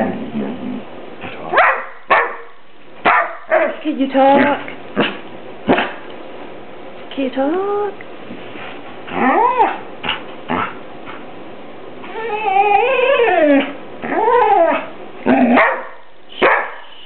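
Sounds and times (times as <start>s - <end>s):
dog howling: 9.1s - 9.9s, 12.0s - 15.8s.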